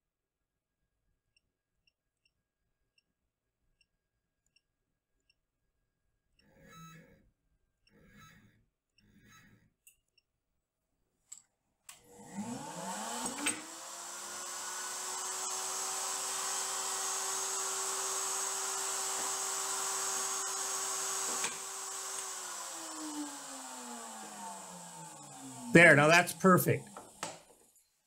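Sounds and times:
router bit cutting wood: 12.0 - 27.6
router motor running: 12.0 - 27.6.

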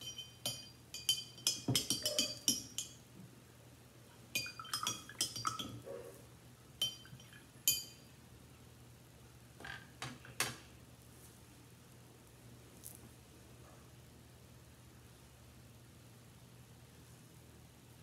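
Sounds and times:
paintbrush clinking against cup: 0.0 - 3.0, 4.4 - 5.8, 6.8 - 8.1.

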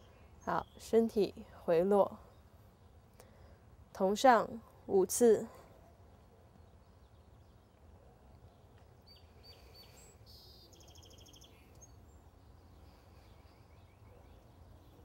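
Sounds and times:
faint outdoor background noise: 0.0 - 15.0
bird chirping and trilling: 9.1 - 12.0.

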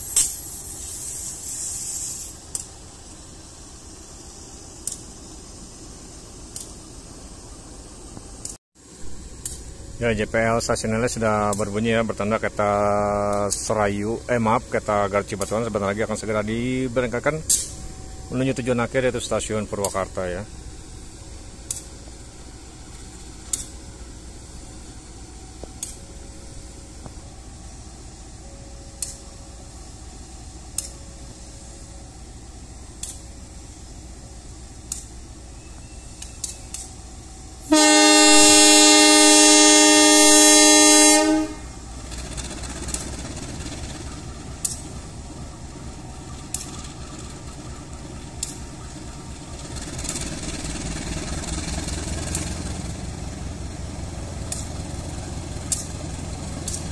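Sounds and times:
locomotive engine rumble: 0.0 - 56.9
locomotive horn blast: 37.6 - 41.8.

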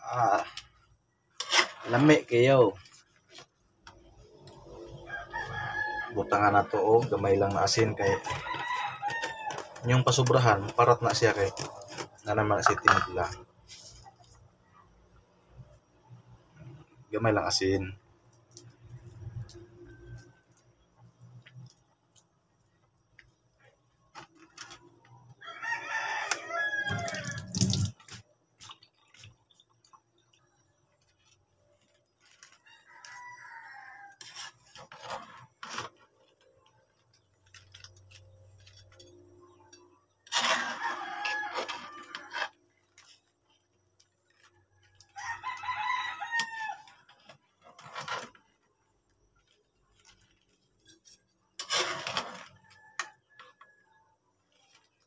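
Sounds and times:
metal spatula scraping a wok: 1.4 - 3.4, 34.1 - 36.0, 40.2 - 43.1, 50.0 - 52.7
rooster crowing: 4.8 - 6.8, 7.8 - 9.9, 25.3 - 27.6, 32.7 - 34.3, 40.5 - 42.5, 45.0 - 47.0.

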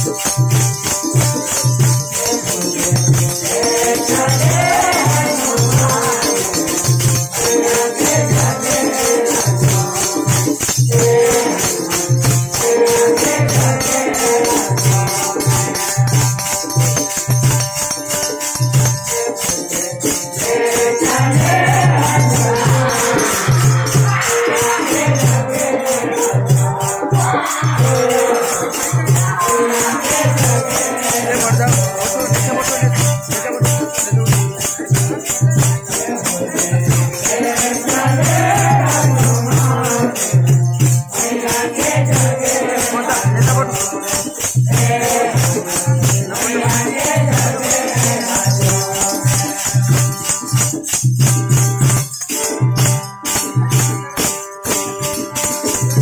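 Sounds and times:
group singing: 0.0 - 51.0
barrel drum: 0.0 - 56.0
harmonium: 0.0 - 56.0
jingling rattle percussion: 0.0 - 56.0.

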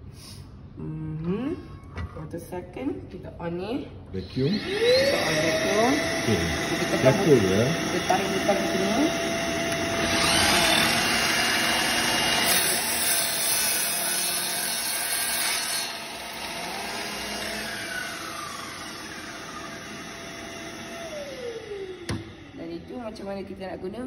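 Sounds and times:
miter saw cutting wood: 4.3 - 22.8.

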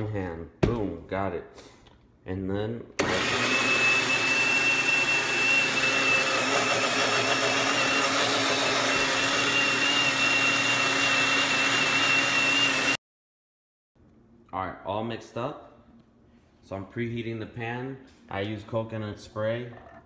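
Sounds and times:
blender motor running: 3.0 - 13.0.

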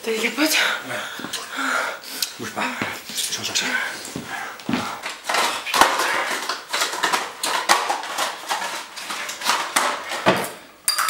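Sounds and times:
small objects clattering: 5.0 - 11.0.

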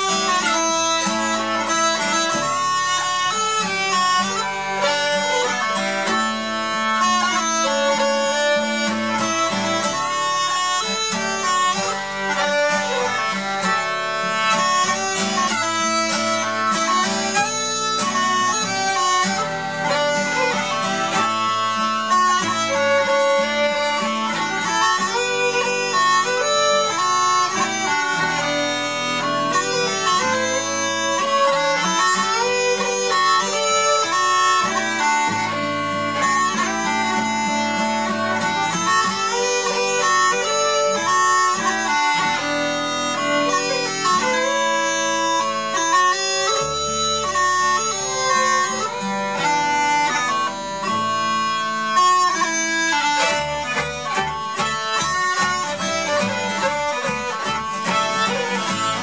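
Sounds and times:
fiddle: 0.0 - 59.0
guitar: 0.0 - 59.0
pipes playing a folk tune: 0.0 - 59.0.

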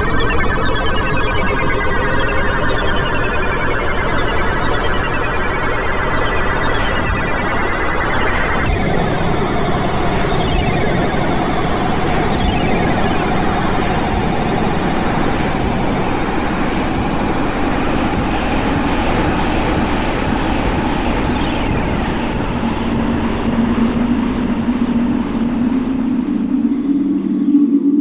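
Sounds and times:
low droning tones: 0.0 - 28.0
dense wash of noise: 6.8 - 28.0.

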